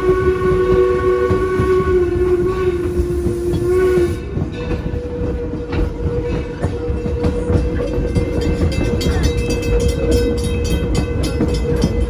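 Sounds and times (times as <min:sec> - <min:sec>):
steam whistle blast: 0:00.0 - 0:04.4
train rumble: 0:00.0 - 0:12.0
wheels clacking on rails: 0:00.0 - 0:12.0.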